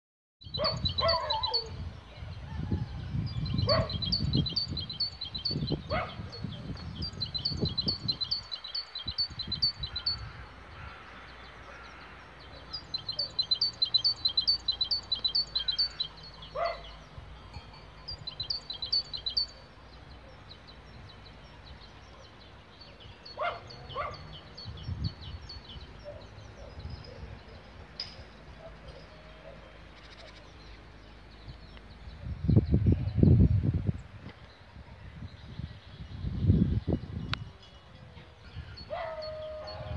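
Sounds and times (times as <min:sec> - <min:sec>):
bird singing high repeated notes: 0:00.4 - 0:01.8, 0:03.4 - 0:10.3, 0:12.6 - 0:20.3.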